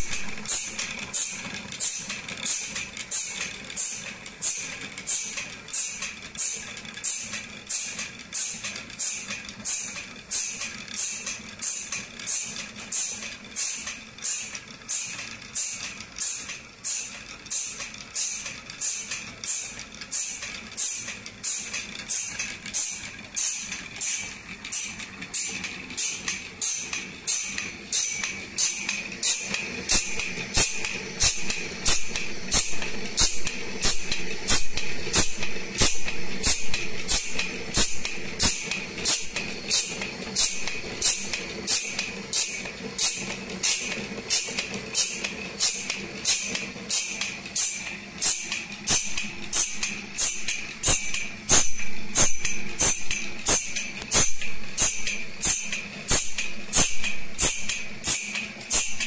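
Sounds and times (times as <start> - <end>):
grinder motor hum: 23.2 - 59.0.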